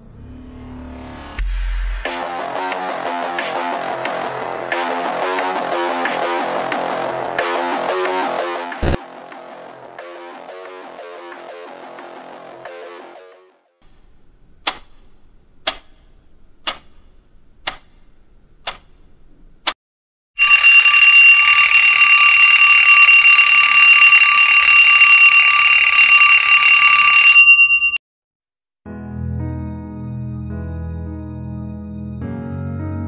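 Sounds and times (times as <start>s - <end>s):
alarm clock bells ringing: 20.4s - 28.0s.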